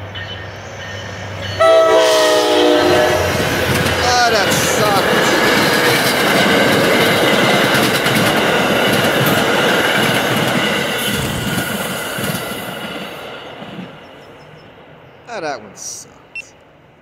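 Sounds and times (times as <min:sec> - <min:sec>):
train wheels on rails: 0:00.0 - 0:15.0.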